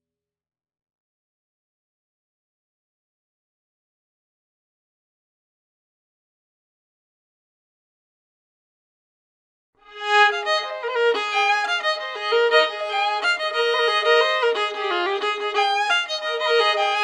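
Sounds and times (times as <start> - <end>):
lively fiddle tune: 9.9 - 17.0.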